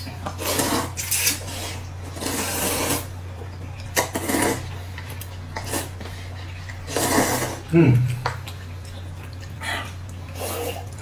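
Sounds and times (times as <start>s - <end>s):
noodles being slurped: 0.0s - 3.1s, 3.8s - 11.0s
low steady hum: 0.0s - 11.0s.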